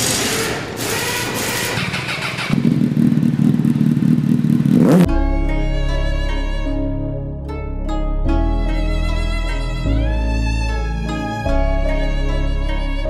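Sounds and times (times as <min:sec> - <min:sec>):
motorcycle engine running: 0:00.0 - 0:06.7
bowed-string music: 0:05.0 - 0:13.0.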